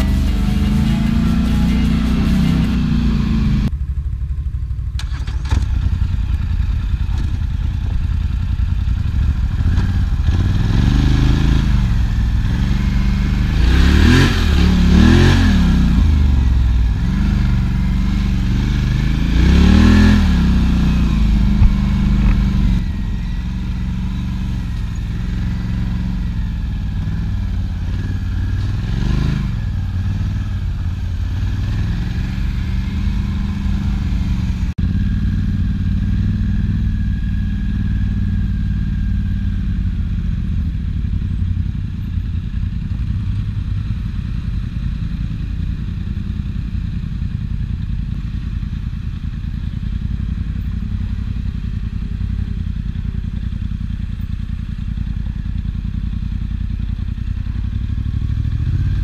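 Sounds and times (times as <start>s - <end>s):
quad bike engine revving: 0.0s - 3.7s, 5.0s - 41.8s, 57.6s - 59.0s.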